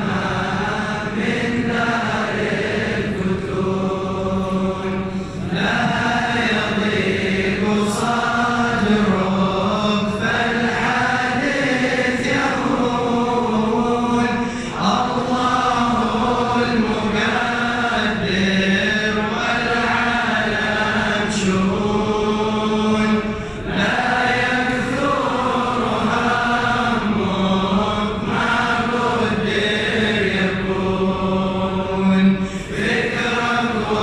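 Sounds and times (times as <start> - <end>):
men chanting in unison: 0.0 - 34.0.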